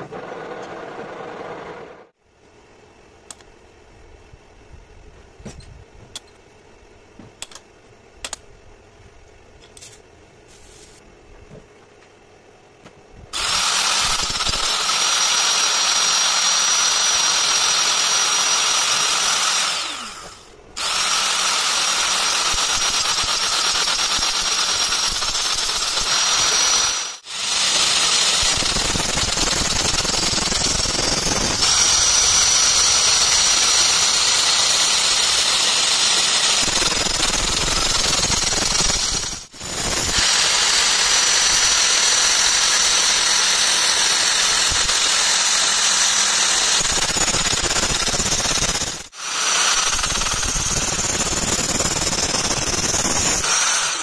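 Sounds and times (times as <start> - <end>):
angle grinder whining: 13.4 - 54.0.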